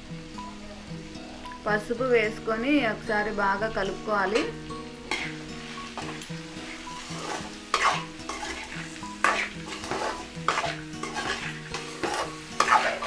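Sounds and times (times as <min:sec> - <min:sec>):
oil sizzling: 0:00.0 - 0:13.0
metal spatula scraping a pan: 0:04.3 - 0:13.0.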